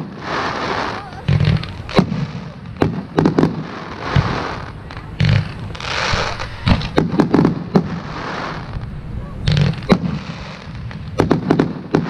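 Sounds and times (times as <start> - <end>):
firework shells bursting: 0.0 - 12.0.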